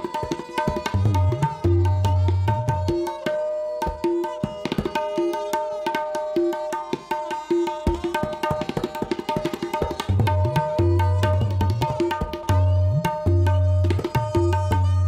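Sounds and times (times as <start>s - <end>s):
tabla ringing strokes: 0.0s - 15.0s
tabla bass strokes: 10.1s - 15.0s.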